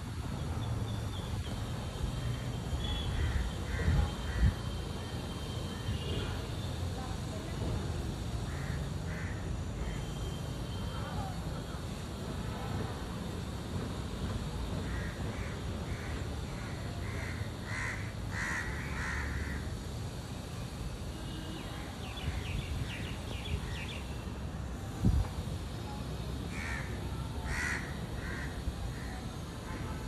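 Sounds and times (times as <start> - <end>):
crow cawing: 3.2 - 4.5, 8.5 - 9.4, 14.8 - 19.7, 26.5 - 29.1.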